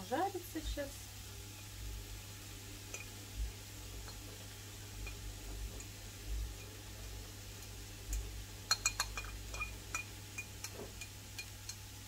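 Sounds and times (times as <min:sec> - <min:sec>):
fork clinking on ceramic plate: 0:08.7 - 0:11.8.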